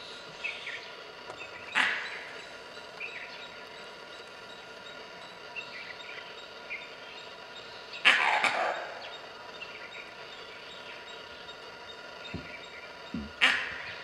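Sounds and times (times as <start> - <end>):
monkey alarm bark: 8.0 - 9.2.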